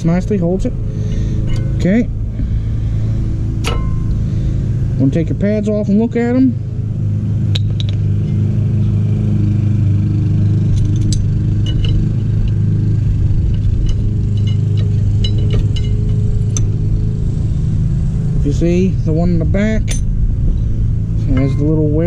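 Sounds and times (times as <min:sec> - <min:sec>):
low machine hum: 0:00.0 - 0:22.0
wrench clinking on metal: 0:01.1 - 0:02.0, 0:03.6 - 0:04.2, 0:10.7 - 0:12.6, 0:13.5 - 0:16.8, 0:19.8 - 0:20.1, 0:21.3 - 0:21.8.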